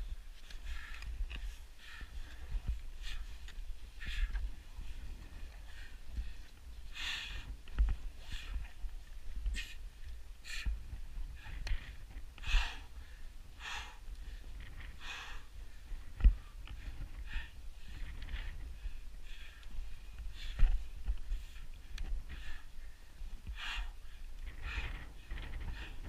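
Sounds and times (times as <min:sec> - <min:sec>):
person breathing hard: 0:00.0 - 0:11.8, 0:12.4 - 0:26.0
wind rumble on microphone: 0:00.0 - 0:26.0.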